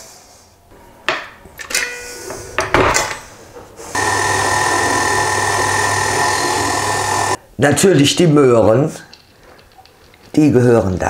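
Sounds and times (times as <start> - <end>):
stand mixer motor humming and whining: 4.0 - 7.4.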